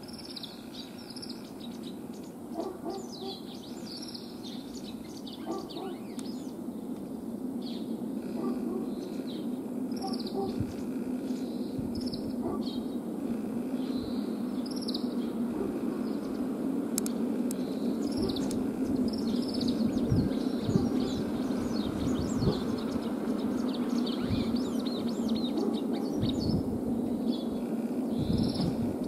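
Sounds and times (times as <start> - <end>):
bird chirping song: 0.0 - 16.6, 17.5 - 29.0.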